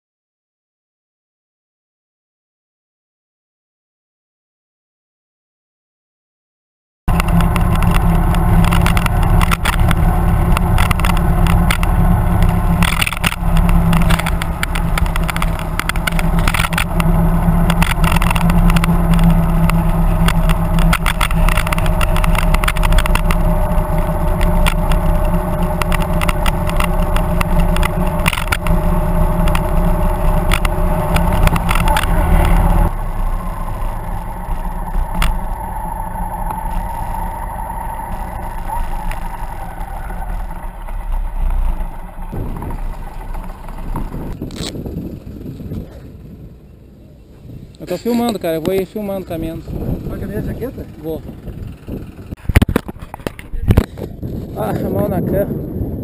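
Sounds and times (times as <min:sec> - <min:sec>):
motorcycle engine running: 0:07.1 - 0:56.0
wind buffeting microphone: 0:07.1 - 0:56.0.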